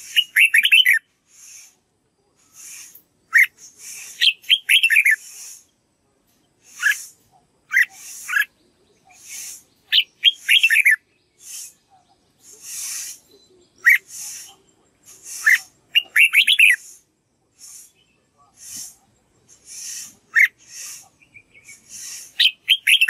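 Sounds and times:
bulbul singing whistled phrases: 0:00.0 - 0:05.9, 0:06.5 - 0:23.0
soft hissy bursts: 0:01.2 - 0:04.3, 0:05.2 - 0:05.8, 0:06.6 - 0:09.8, 0:11.4 - 0:16.0, 0:16.6 - 0:22.5.

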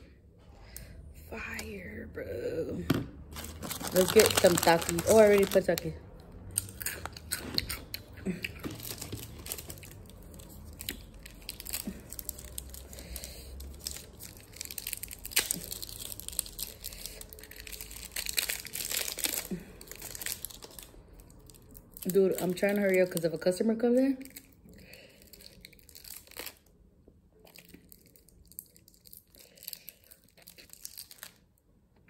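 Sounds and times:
chewing and crunching: 0:06.4 - 0:22.6, 0:27.4 - 0:31.4.

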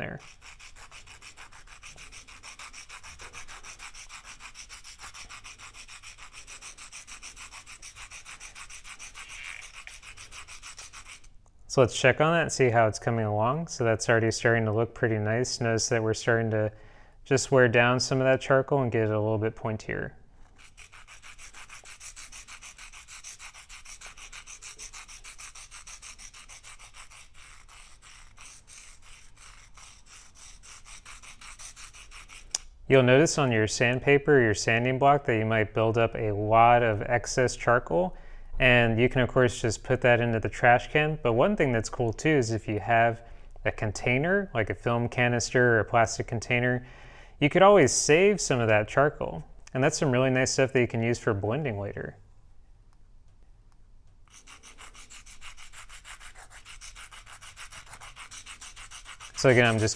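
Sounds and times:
pencil scratching on sandpaper: 0:00.0 - 0:11.4, 0:20.4 - 0:32.6, 0:54.3 - 0:59.9.

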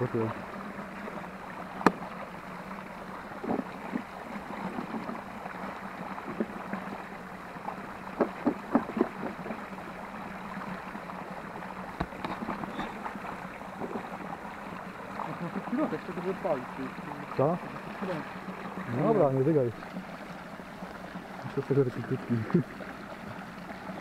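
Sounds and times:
stream running over a log: 0:00.0 - 0:24.0
short knocks or rustles: 0:08.2 - 0:09.5.

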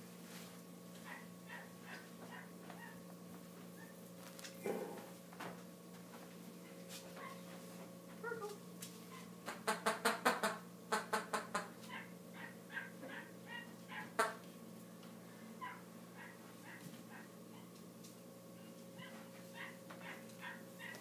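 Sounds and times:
puppy yipping: 0:01.1 - 0:03.0, 0:11.9 - 0:14.2, 0:15.6 - 0:17.7, 0:19.0 - 0:21.0.

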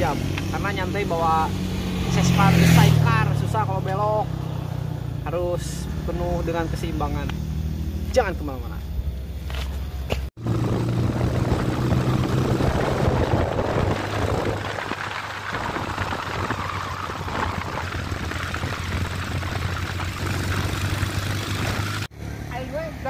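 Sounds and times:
motorcycle engine running: 0:00.0 - 0:23.0
wind rush on microphone: 0:10.4 - 0:22.1.

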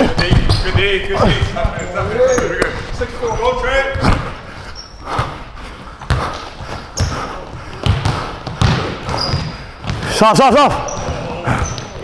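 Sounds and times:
shoe squeaks: 0:00.0 - 0:05.3, 0:06.3 - 0:07.4, 0:08.6 - 0:09.6, 0:10.7 - 0:12.0
basketball bouncing on wooden floor: 0:06.0 - 0:10.1, 0:10.8 - 0:12.0.

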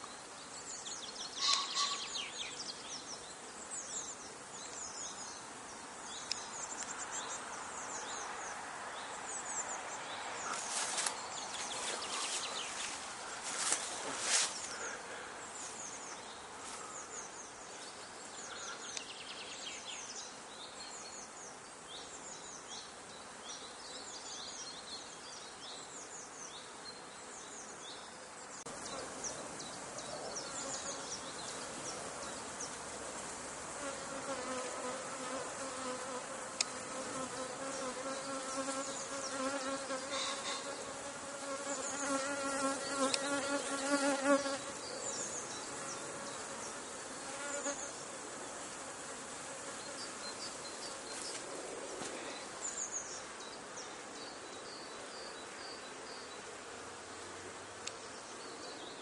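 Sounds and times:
honey bees buzzing: 0:09.2 - 0:19.0, 0:28.6 - 0:54.3
bees flying close by: 0:25.9 - 0:59.0.

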